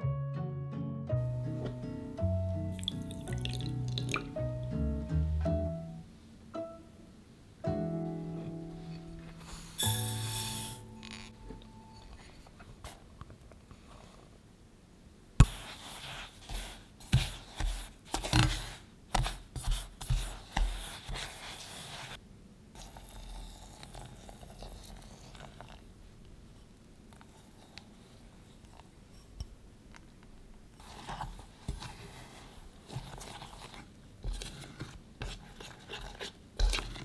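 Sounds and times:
utensil scraping in saucepan: 8.9 - 12.6.

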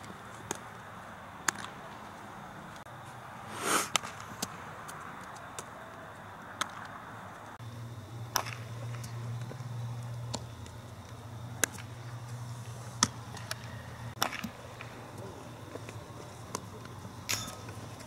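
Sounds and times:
baseballs being hit and caught: 1.4 - 2.1, 3.9 - 7.0, 8.2 - 12.4, 13.0 - 18.0
steady low hum: 7.6 - 18.0.

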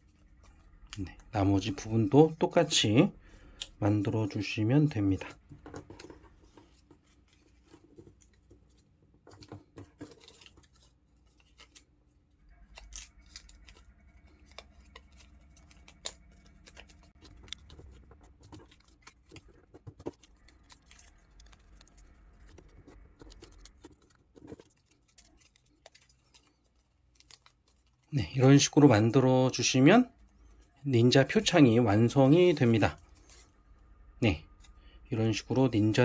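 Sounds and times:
paper rustling and crinkling: 5.0 - 36.0
paper crease clicks: 5.8 - 28.7.

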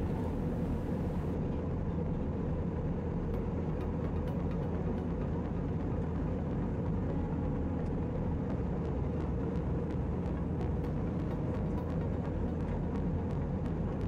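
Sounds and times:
airplane cabin rumble: 0.0 - 1.8.

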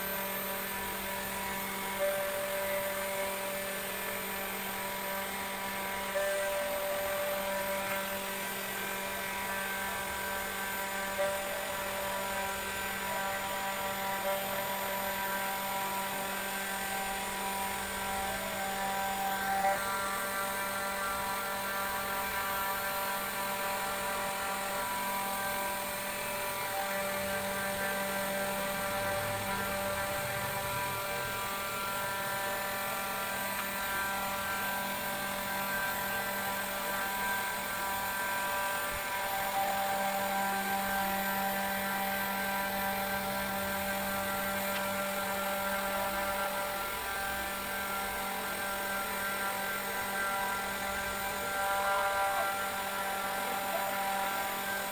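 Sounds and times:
router spindle whining: 0.0 - 54.9.

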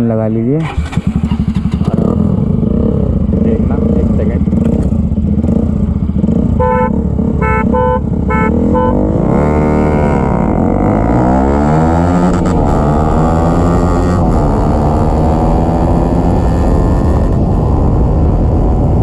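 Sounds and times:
motorcycles accelerating hard: 0.7 - 19.0
vehicle horn beeping: 6.6 - 9.4.

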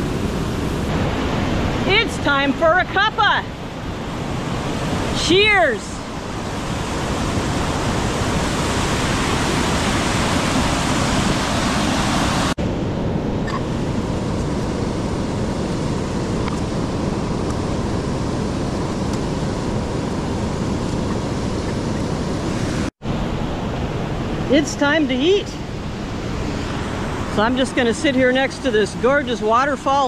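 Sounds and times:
waterfall rushing: 3.4 - 12.6.

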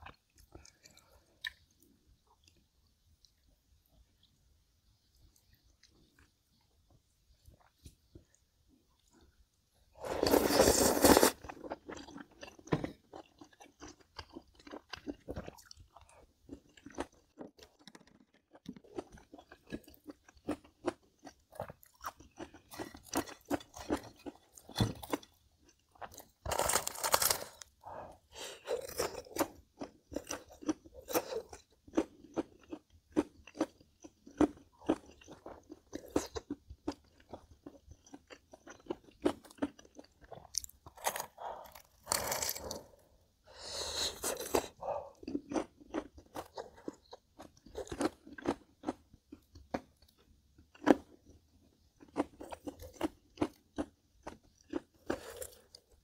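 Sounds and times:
crisp food crunching: 10.0 - 27.8, 28.6 - 42.9, 44.1 - 51.4, 52.0 - 56.0.

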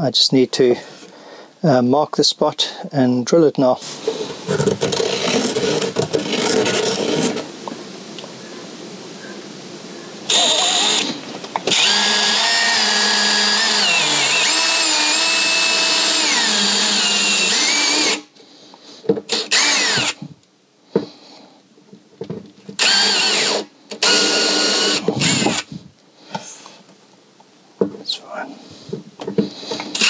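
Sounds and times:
cordless drill boring into plastic: 4.2 - 7.4, 10.3 - 18.3, 19.3 - 20.3, 22.8 - 25.7, 29.7 - 30.0
drill clicks: 10.3 - 18.2, 19.3 - 20.2, 22.8 - 25.7, 29.7 - 30.0.

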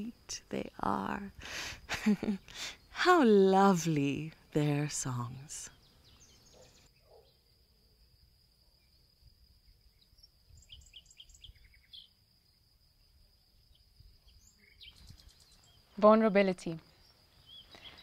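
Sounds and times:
faint bird chirps: 5.5 - 18.0.

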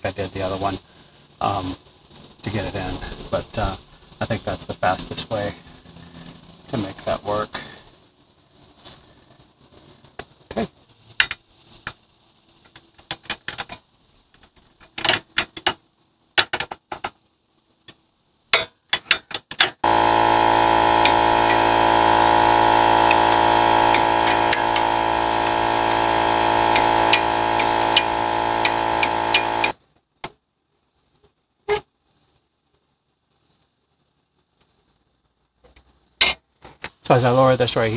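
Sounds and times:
loud motor-like whir: 19.8 - 29.8.

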